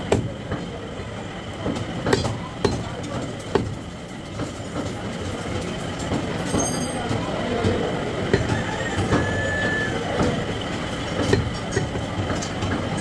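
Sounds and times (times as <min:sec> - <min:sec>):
cleaver chopping meat on wood: 0:02.1 - 0:02.9, 0:03.5 - 0:03.8.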